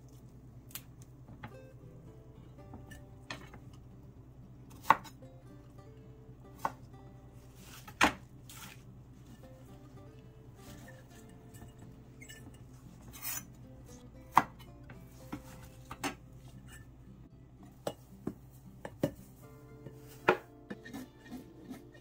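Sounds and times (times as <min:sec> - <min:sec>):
knife chopping on wooden board: 0:04.7 - 0:05.1, 0:07.6 - 0:08.8, 0:14.3 - 0:14.5, 0:20.2 - 0:22.0
knife scraping board: 0:13.0 - 0:13.5, 0:20.2 - 0:22.0.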